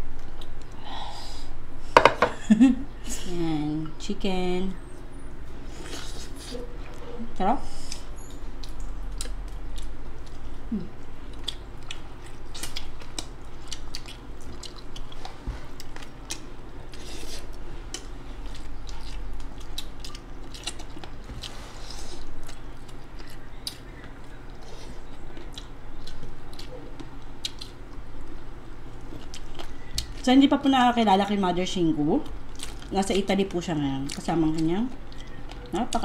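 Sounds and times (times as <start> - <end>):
wet chewing: 7.9 - 30.3, 32.2 - 32.9.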